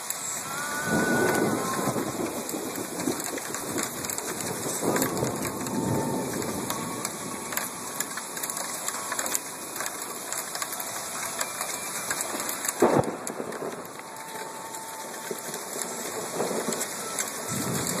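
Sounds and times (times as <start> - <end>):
hail falling: 0.0 - 18.0.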